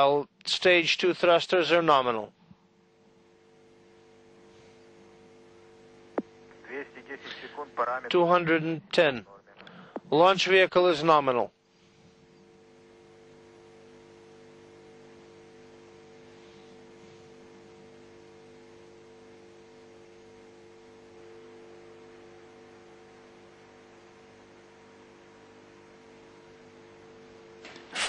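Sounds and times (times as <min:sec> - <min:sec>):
electrical hum: 0:00.0 - 0:28.0
low hiss: 0:04.3 - 0:25.7.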